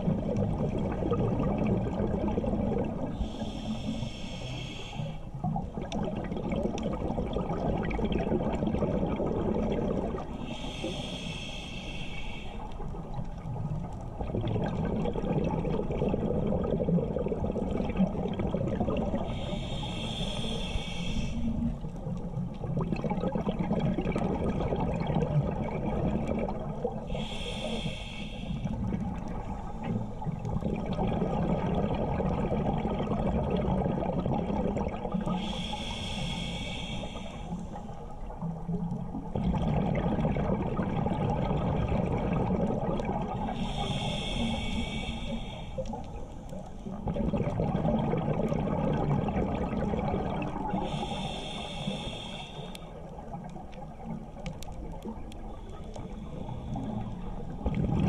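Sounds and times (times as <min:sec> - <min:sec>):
low rumble of water: 0:00.0 - 0:58.0
diver exhaling bubbles: 0:05.4 - 0:10.4, 0:14.2 - 0:19.4, 0:39.1 - 0:45.1, 0:46.9 - 0:52.0, 0:56.2 - 0:58.0.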